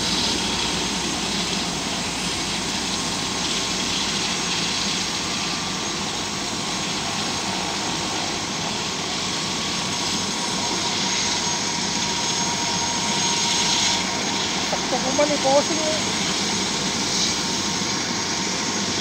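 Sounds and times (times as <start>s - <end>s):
helicopter turbine whine: 0.0s - 19.0s.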